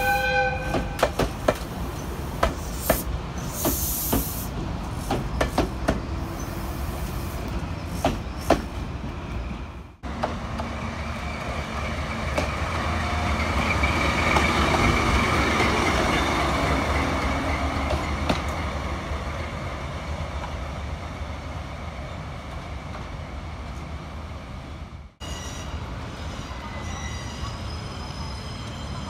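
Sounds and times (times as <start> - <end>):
diesel locomotive engine with whine: 0.0 - 29.0
railcar wheels clicking over rail joints: 0.7 - 6.2.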